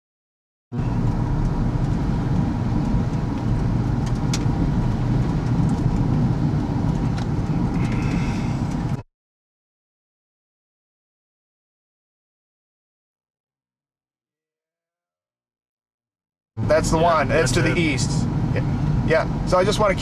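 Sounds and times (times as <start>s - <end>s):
road and engine noise in car: 0.7s - 9.0s, 16.6s - 20.0s.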